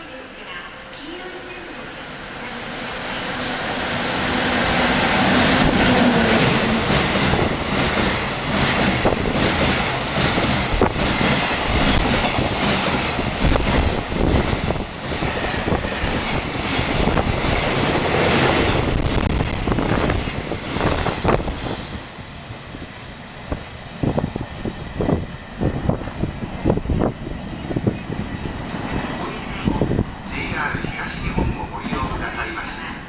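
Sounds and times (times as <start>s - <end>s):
freight train passing: 0.0s - 33.0s
train wheels clattering: 5.1s - 21.9s.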